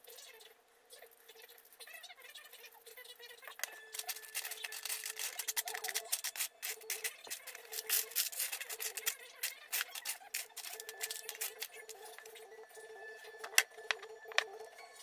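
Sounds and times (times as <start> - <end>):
screws rattling in plastic tray: 3.9 - 11.7.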